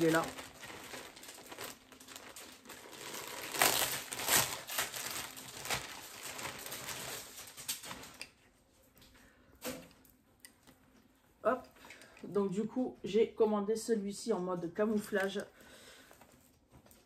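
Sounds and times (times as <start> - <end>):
packaging crinkling and rustling: 0.0 - 10.0.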